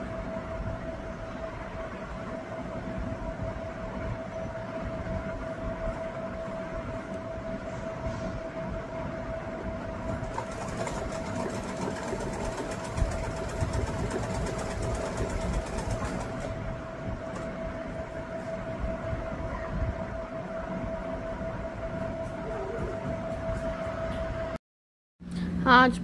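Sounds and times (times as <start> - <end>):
steady hum: 0.0 - 24.6, 25.2 - 26.0
sewing machine stitching: 10.2 - 16.5.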